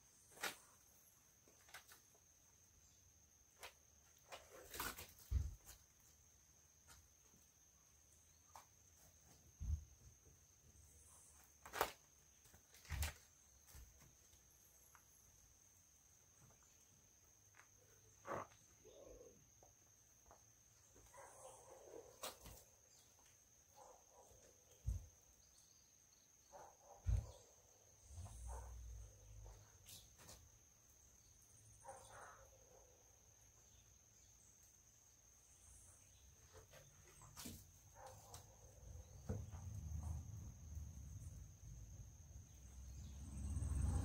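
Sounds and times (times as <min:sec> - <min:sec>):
thump: 0:27.0 - 0:27.4.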